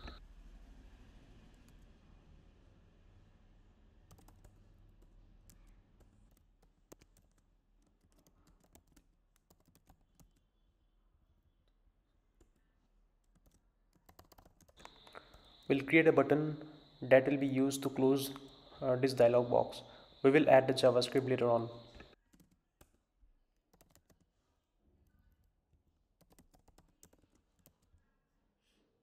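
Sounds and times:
faint keyboard typing: 4.1 - 10.6, 12.3 - 24.4, 26.2 - 28.1.

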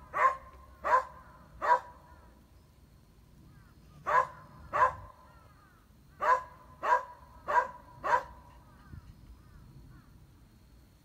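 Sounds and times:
dog barking sharply: 0.1 - 2.0, 4.1 - 5.1, 6.2 - 8.4.

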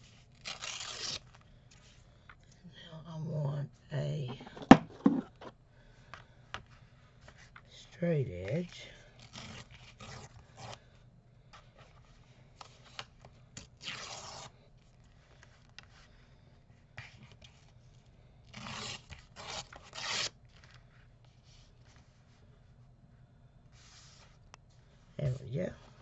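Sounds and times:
paper scraping on card: 0.1 - 1.3, 13.8 - 14.5, 18.6 - 20.7
paper tearing: 0.3 - 1.3, 9.2 - 10.8, 13.8 - 14.5, 18.5 - 20.4.

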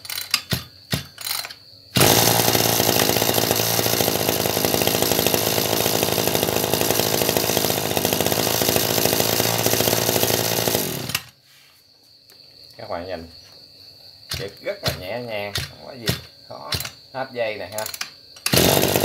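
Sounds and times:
brush-cutter engine running: 2.0 - 11.3, 18.5 - 19.0.

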